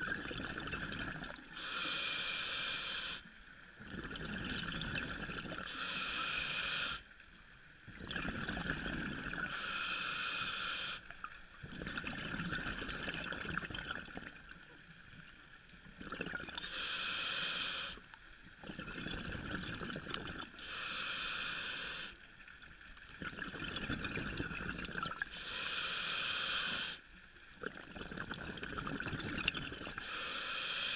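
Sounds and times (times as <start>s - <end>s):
rush of exhaled bubbles: 0.0s - 1.6s, 3.8s - 5.6s, 7.9s - 9.5s, 11.6s - 14.4s, 15.9s - 16.6s, 18.6s - 20.6s, 23.1s - 25.3s, 27.6s - 30.0s
hissing regulator inhalation: 1.5s - 3.3s, 5.6s - 7.1s, 9.4s - 11.0s, 16.6s - 18.0s, 20.6s - 22.2s, 25.3s - 27.0s, 30.0s - 30.9s.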